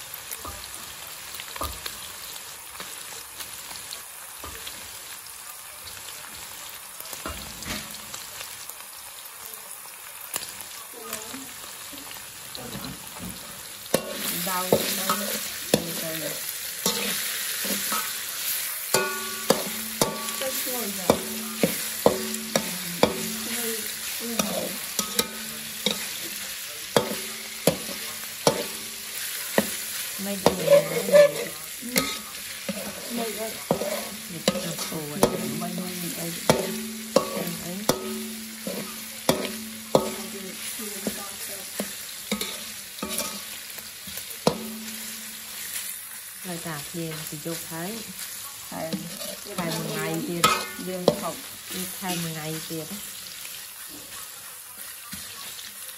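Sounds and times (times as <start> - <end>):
oil sizzling: 0.0 - 55.9
metal spatula striking a wok: 13.9 - 18.2, 18.9 - 26.3, 26.9 - 43.5, 44.4 - 45.8, 48.9 - 52.7.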